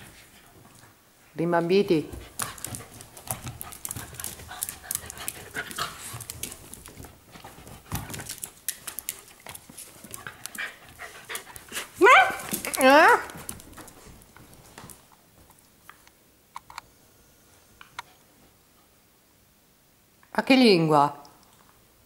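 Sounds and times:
dogs play-fighting: 0:02.1 - 0:15.1
claws clicking on tile floor: 0:02.3 - 0:07.1, 0:07.9 - 0:11.7, 0:12.4 - 0:16.0.

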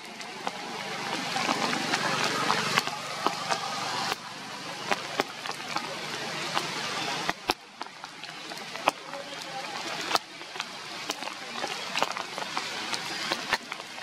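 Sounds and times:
rain on foliage: 0:00.0 - 0:14.0
water drips: 0:00.0 - 0:14.0.

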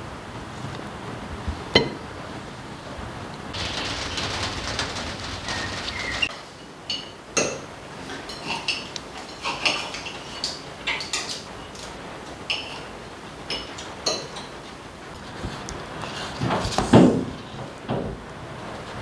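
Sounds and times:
cutlery clinking on plates: 0:06.9 - 0:11.9, 0:12.5 - 0:12.9, 0:13.5 - 0:14.5.

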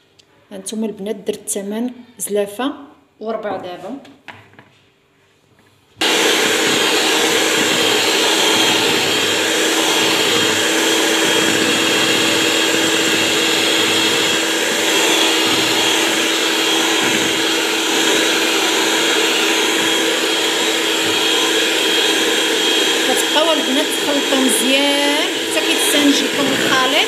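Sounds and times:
electric hand mixer running: 0:06.0 - 0:27.0.

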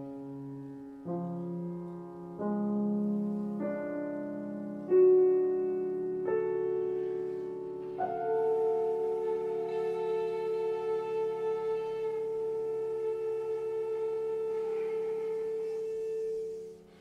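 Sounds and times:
piano playing sustained chords: 0:00.0 - 0:17.0.

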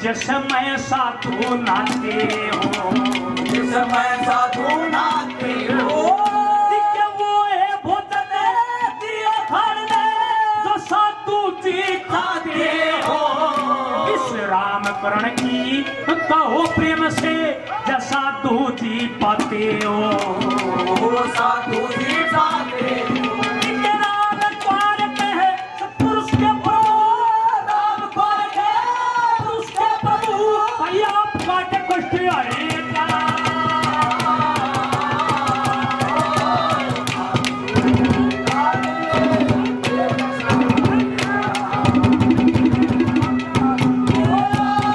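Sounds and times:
hand drum strokes: 0:00.0 - 0:06.9, 0:12.5 - 0:27.1, 0:29.4 - 0:44.9
man singing into a microphone: 0:00.0 - 0:42.3, 0:42.9 - 0:44.9
steady instrumental tones: 0:36.9 - 0:44.8.

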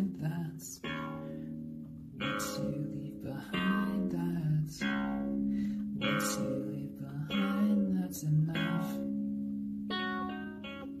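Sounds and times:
keyboard chords ringing: 0:00.0 - 0:11.0.

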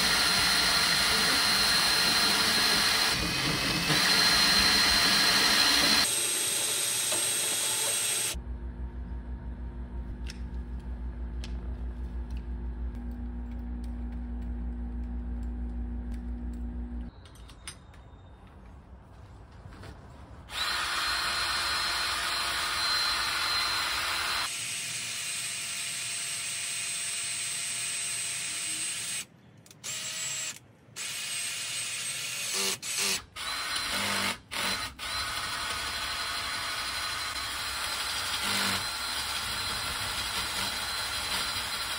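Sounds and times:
cordless drill boring into plastic pipe: 0:00.0 - 0:08.4, 0:20.5 - 0:29.2, 0:29.9 - 0:41.9
steady low hum: 0:08.4 - 0:17.1.

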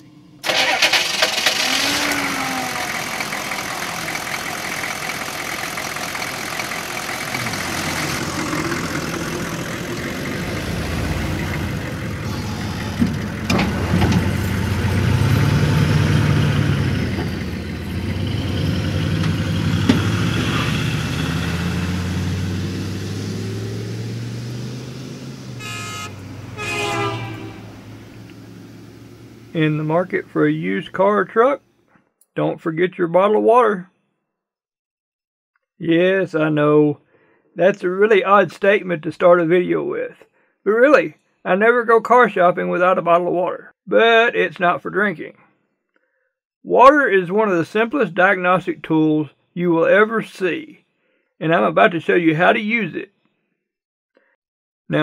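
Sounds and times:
pickup truck engine revving: 0:00.0 - 0:31.0
car horn honks: 0:25.6 - 0:28.3.

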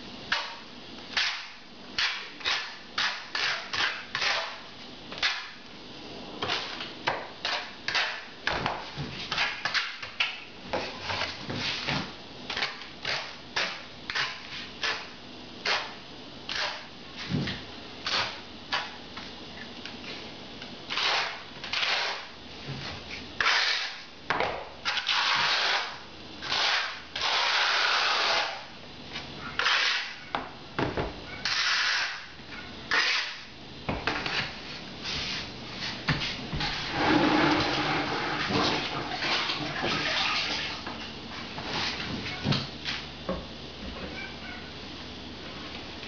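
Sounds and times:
trowel scraping tile adhesive: 0:29.6 - 0:30.1, 0:31.4 - 0:32.2.

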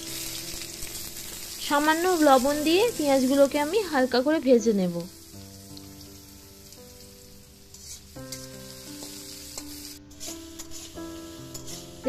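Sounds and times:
onions sizzling in hot oil: 0:00.0 - 0:12.0
soft background music: 0:00.0 - 0:12.0
spatula scraping: 0:07.6 - 0:12.0.

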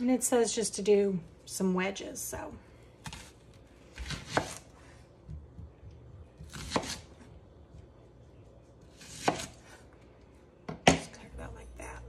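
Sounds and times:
knife cutting onion on board: 0:03.0 - 0:04.7, 0:06.4 - 0:07.2, 0:08.9 - 0:09.8.

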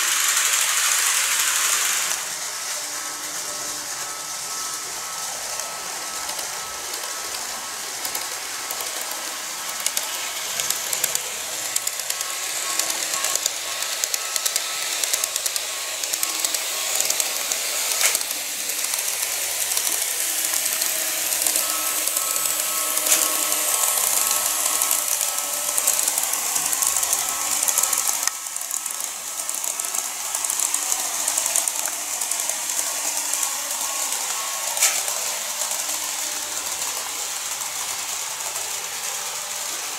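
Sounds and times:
model train motor whine: 0:00.0 - 0:39.9
wheels clicking over rail joints: 0:08.0 - 0:38.0.

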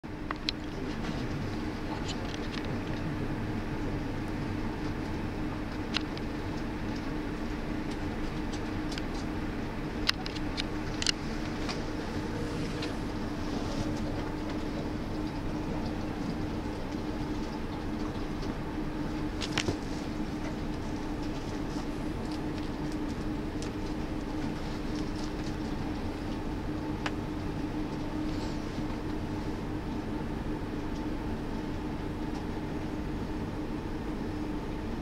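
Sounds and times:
low hum: 0:00.1 - 0:35.0.

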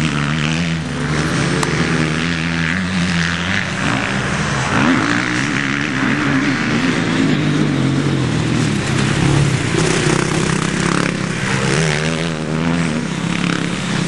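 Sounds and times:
motocross motorcycle engine revving: 0:00.0 - 0:14.0.

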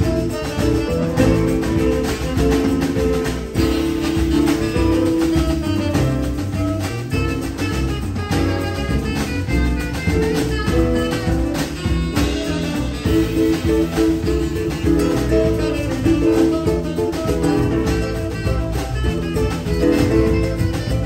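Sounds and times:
bass: 0:00.0 - 0:21.0
drum kit: 0:00.0 - 0:21.0
keyboard: 0:00.0 - 0:21.0.

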